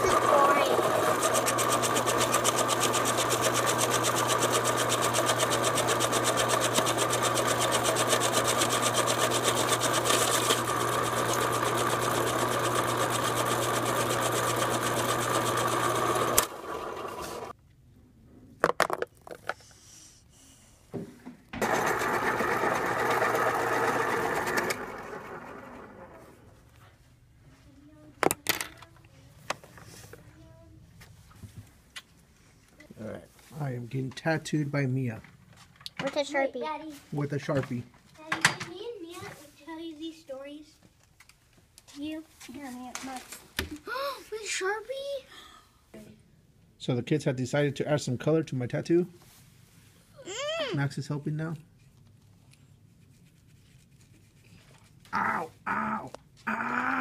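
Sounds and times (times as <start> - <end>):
electric pencil sharpener motor: 0.0 - 17.5, 21.6 - 26.3.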